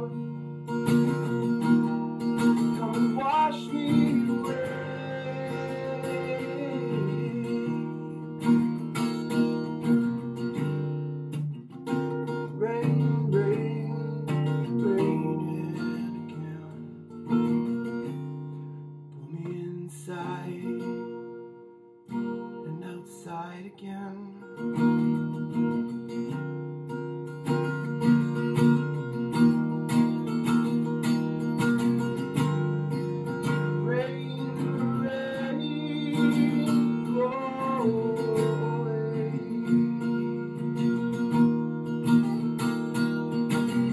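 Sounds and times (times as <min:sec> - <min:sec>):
man singing: 0:00.0 - 0:01.3, 0:02.5 - 0:08.8, 0:12.4 - 0:16.9, 0:19.2 - 0:21.1, 0:22.6 - 0:24.6, 0:32.4 - 0:41.2
acoustic guitar strumming chords: 0:00.0 - 0:43.9.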